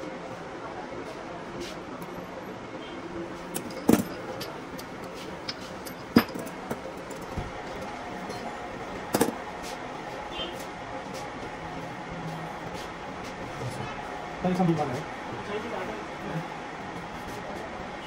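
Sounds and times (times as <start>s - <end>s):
steady background hum: 0.0s - 18.0s
metal tools clinking and knocking: 3.5s - 7.3s, 8.2s - 8.5s.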